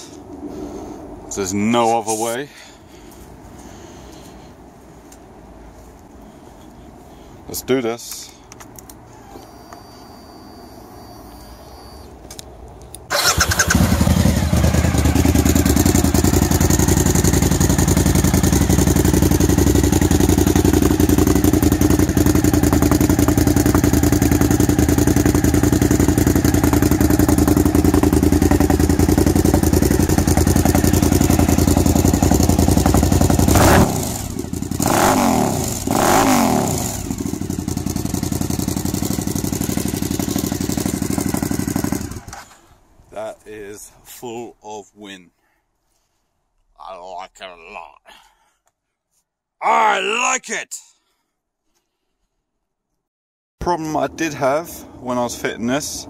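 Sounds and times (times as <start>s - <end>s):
motorcycle throttle revs: 13.1s - 42.4s
motorcycle engine running loud: 13.4s - 42.3s.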